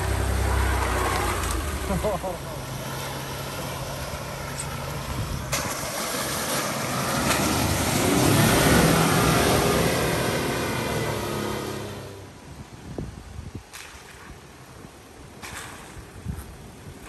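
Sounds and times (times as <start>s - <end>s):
vehicle driving past through mud: 0.0s - 12.3s.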